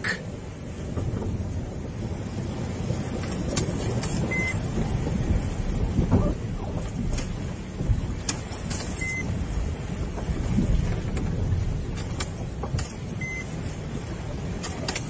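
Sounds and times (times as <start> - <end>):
vehicle engine rumble: 0.0 - 15.0
short high beeps: 9.0 - 9.2, 13.2 - 13.5.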